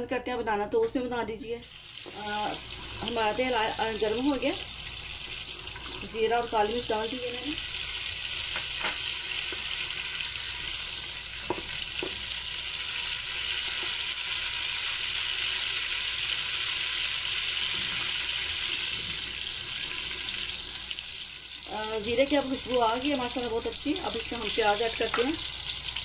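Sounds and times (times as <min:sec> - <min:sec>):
spices sizzling in hot oil: 0:01.6 - 0:26.0.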